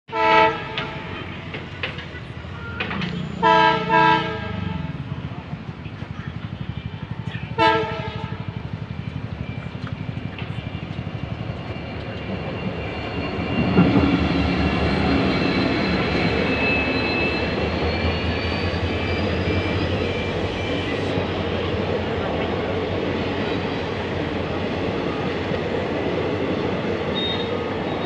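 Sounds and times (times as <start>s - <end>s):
diesel locomotive rumbling past: 0.1s - 28.0s
horn blast: 3.4s - 5.0s, 7.6s - 8.4s.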